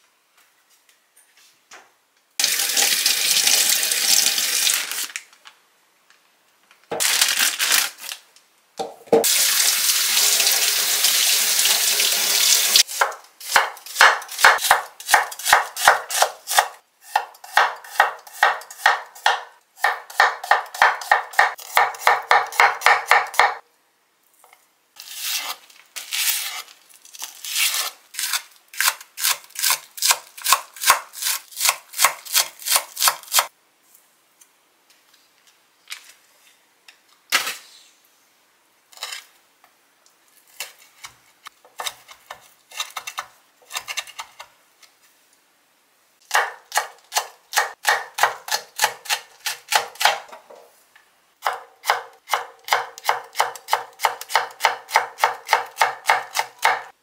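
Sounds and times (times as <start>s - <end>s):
knife chopping on wooden board: 13.0s - 23.6s, 46.3s - 50.3s, 51.4s - 56.9s.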